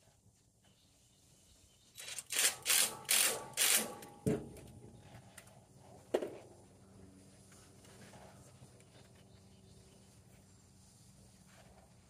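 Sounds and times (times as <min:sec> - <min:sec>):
ratchet clicking: 0:02.0 - 0:04.0.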